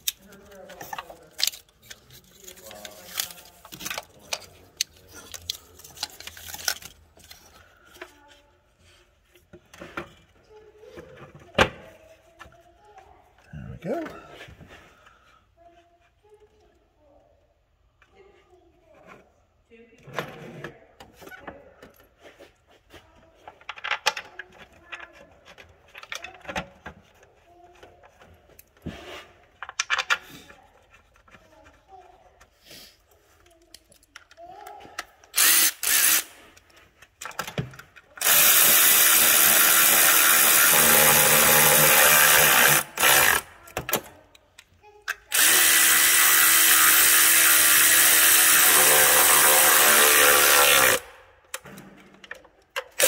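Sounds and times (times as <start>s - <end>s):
hands handling plastic connectors: 0.0s - 8.4s.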